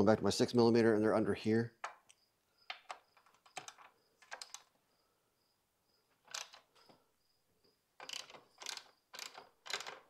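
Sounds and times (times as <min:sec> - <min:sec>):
hand tool clicking and scraping: 0:06.2 - 0:06.9, 0:08.0 - 0:10.0.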